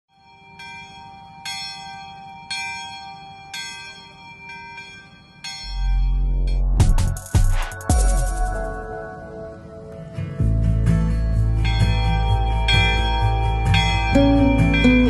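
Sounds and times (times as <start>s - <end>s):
bell tolling slowly: 0.1s - 9.8s, 11.4s - 15.0s
intro jingle: 5.7s - 9.8s.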